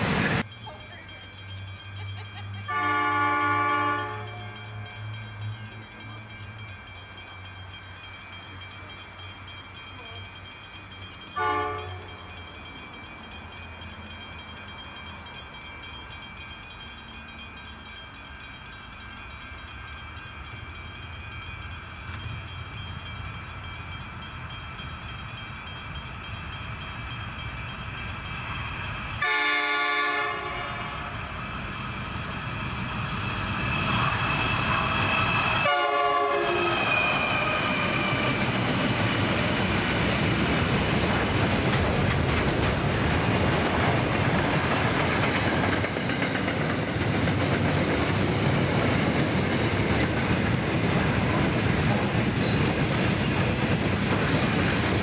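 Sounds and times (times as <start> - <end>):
diesel locomotive engine rumble: 0.0 - 55.0
locomotive horn blasts: 2.7 - 4.6, 11.4 - 12.1, 29.2 - 30.9, 35.6 - 36.7.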